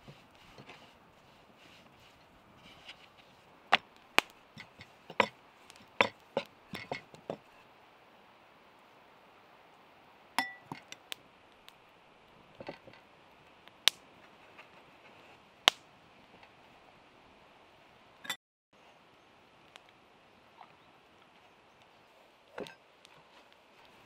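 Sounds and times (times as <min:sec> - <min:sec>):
metal spoon clinking on bowl: 0:10.4 - 0:10.8.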